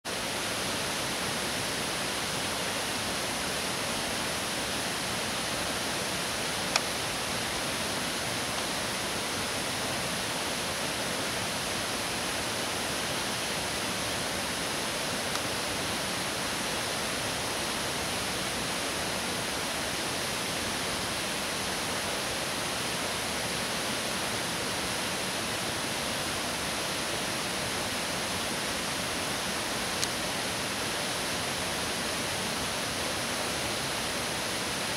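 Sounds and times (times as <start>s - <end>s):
water rushing: 0.1s - 34.9s.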